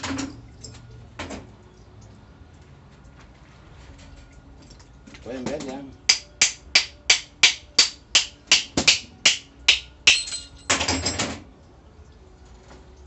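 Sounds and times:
small hammer tapping metal: 0:06.1 - 0:10.8.

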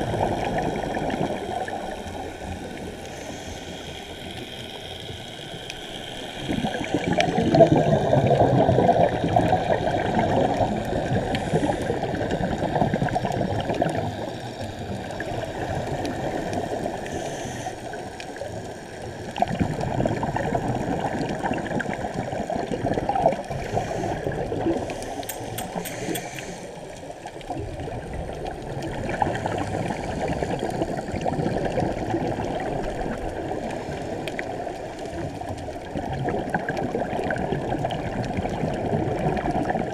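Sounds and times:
scuba diver's bubbles gurgling: 0:00.0 - 0:39.9.

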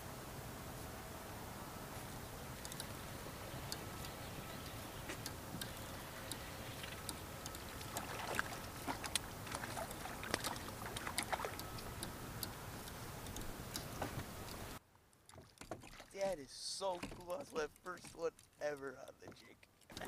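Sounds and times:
steady hiss: 0:16.2 - 0:19.1.

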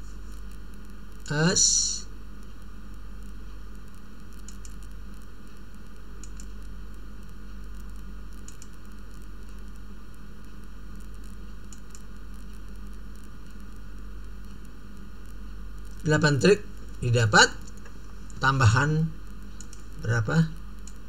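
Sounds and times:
low mains hum: 0:00.0 - 0:21.0
steady background hiss: 0:00.0 - 0:21.0
faint mouse clicks: 0:04.3 - 0:05.6, 0:06.2 - 0:06.7, 0:07.7 - 0:09.6, 0:10.4 - 0:12.6, 0:19.5 - 0:20.0, 0:20.8 - 0:21.0.

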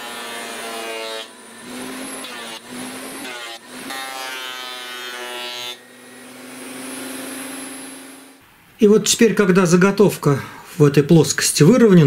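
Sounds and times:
thickness planer motor whine: 0:00.0 - 0:08.4.

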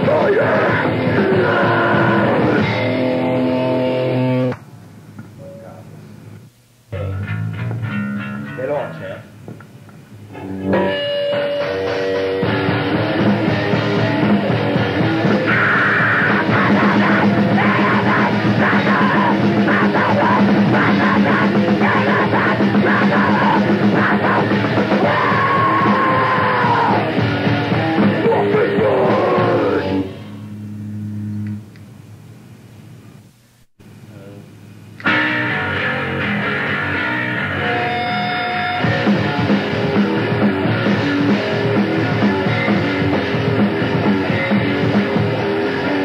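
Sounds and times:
grindcore song: 0:00.0 - 0:04.6, 0:10.4 - 0:31.4, 0:35.0 - 0:46.0
distorted guitars: 0:00.0 - 0:04.7, 0:05.3 - 0:31.8, 0:33.8 - 0:46.0
drums: 0:00.0 - 0:30.6, 0:33.3 - 0:46.0
person yelling vocals: 0:15.5 - 0:27.1, 0:28.2 - 0:30.0.

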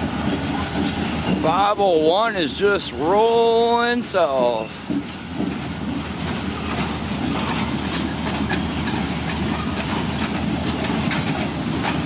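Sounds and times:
train wheels clacking over rail joints: 0:00.0 - 0:12.0
high wheel squeal: 0:07.3 - 0:12.0.

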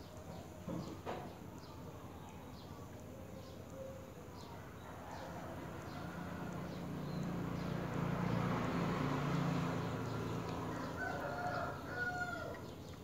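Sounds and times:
rooster crowing: 0:04.8 - 0:06.9, 0:10.5 - 0:12.7.

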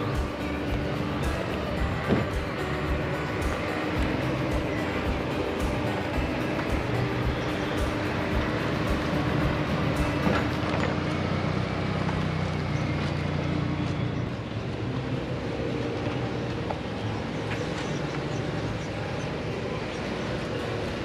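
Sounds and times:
car engines running: 0:00.0 - 0:21.0.

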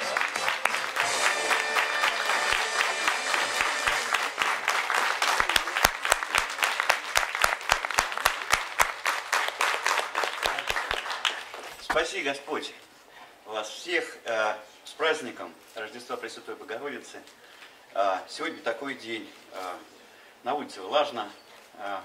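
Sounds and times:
rhythmic clapping in unison: 0:00.0 - 0:11.7
audience applauding: 0:00.0 - 0:11.9.

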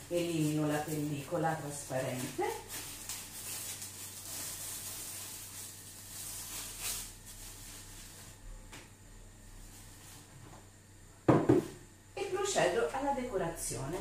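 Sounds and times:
cling film crinkling: 0:00.1 - 0:08.4.

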